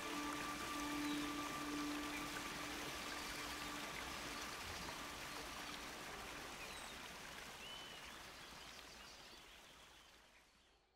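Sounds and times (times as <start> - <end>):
faint music tones: 0.0 - 6.6.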